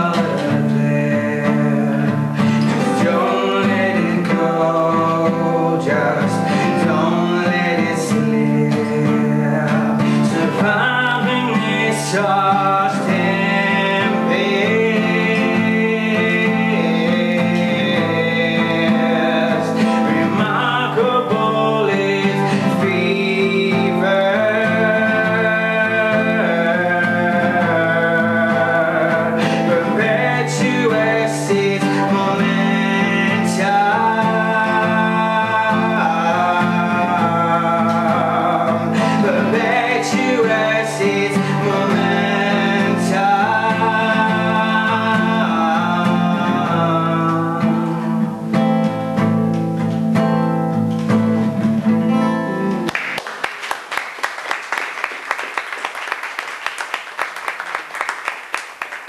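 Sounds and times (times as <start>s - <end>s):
acoustic guitar strumming: 0.0s - 53.3s
man singing: 0.0s - 53.3s
audience applauding: 52.8s - 59.0s.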